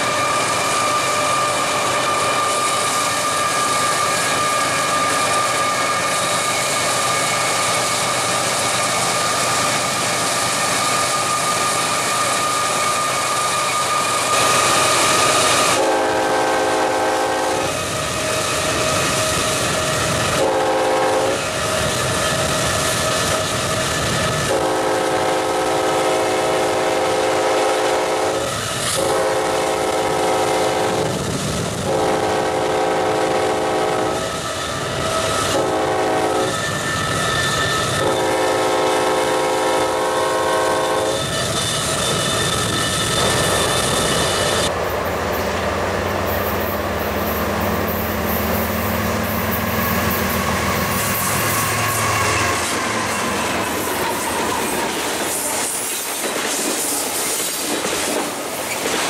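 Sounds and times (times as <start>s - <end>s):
train rumbling on rails: 0.0s - 59.0s
locomotive air horn blasts: 14.3s - 17.8s, 20.3s - 21.5s, 24.4s - 31.2s, 31.8s - 34.3s, 35.4s - 36.6s, 37.9s - 41.3s.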